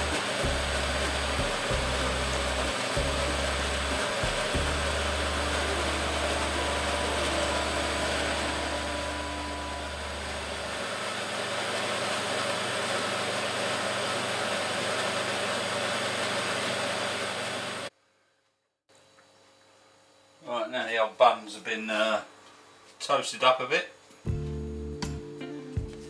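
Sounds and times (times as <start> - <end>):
low hum: 0.0 - 11.0
extractor hood fan rushing: 0.0 - 17.9.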